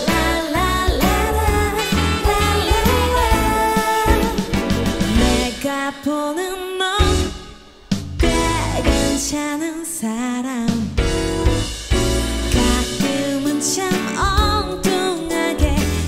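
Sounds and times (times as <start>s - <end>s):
band playing drums bass guitar: 0.0s - 5.7s, 7.0s - 9.4s, 10.9s - 16.0s
woman singing pop ballad: 0.0s - 11.1s, 12.5s - 16.0s.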